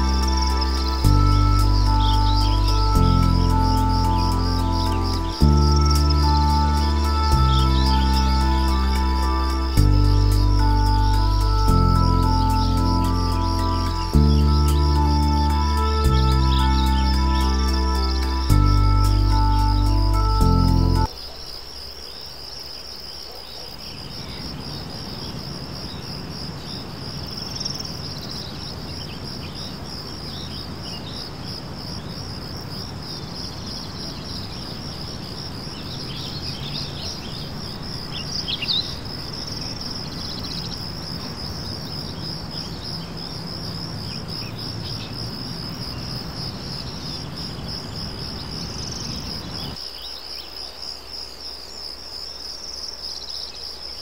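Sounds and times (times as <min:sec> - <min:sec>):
high-pitched pulsing chirring: 0:00.0 - 0:21.1
bird chirps: 0:00.0 - 0:21.6, 0:33.7 - 0:40.8.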